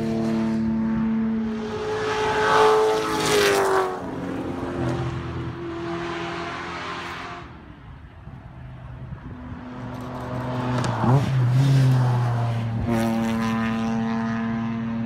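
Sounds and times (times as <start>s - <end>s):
rally car engine passing: 0.0s - 7.6s, 9.4s - 15.0s.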